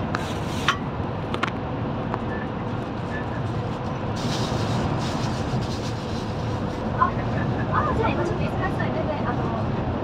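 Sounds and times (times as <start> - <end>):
bus rumbling in tunnel: 0.0 - 10.0
passing vehicle hiss: 4.1 - 7.9.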